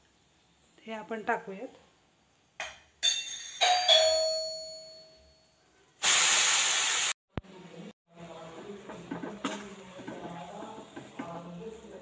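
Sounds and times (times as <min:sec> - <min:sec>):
loud hiss: 0:06.0 - 0:07.2.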